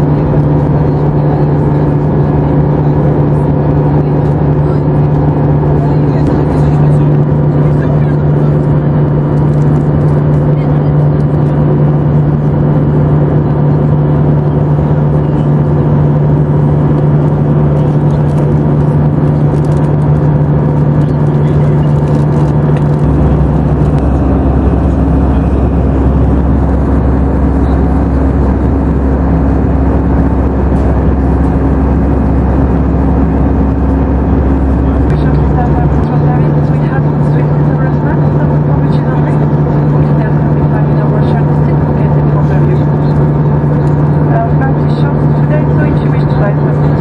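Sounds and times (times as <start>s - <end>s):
jet engines droning: 0.0s - 47.0s
rushing airflow: 0.0s - 47.0s.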